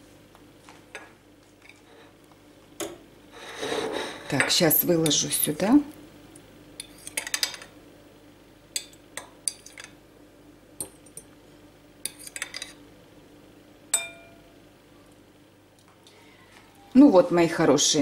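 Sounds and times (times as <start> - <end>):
fork clinking on glass bowl: 13.9 - 14.4
fork clinking on plate: 14.0 - 14.4.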